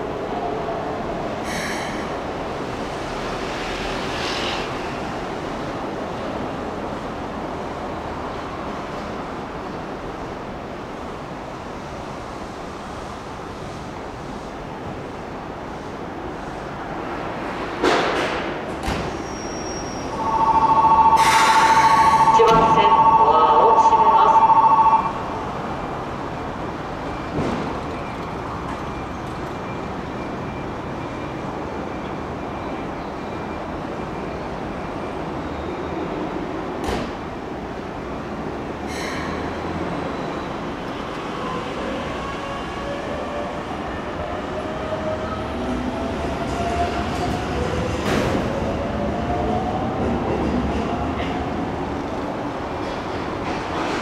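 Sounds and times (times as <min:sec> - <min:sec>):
loud electronic tone: 0:20.1 - 0:25.3
standing train humming: 0:20.1 - 0:30.1.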